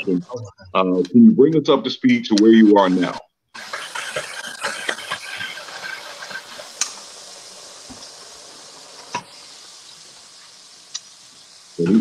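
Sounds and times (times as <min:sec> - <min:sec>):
food sizzling in pans: 0:02.8 - 0:12.0.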